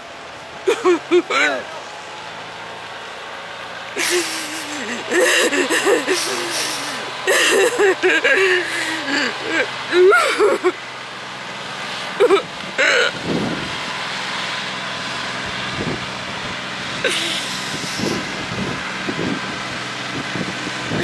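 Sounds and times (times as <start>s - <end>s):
wildfire rushing: 0.0s - 21.0s
woman sobbing: 0.7s - 1.5s, 4.0s - 10.8s, 12.2s - 13.2s, 17.0s - 18.2s.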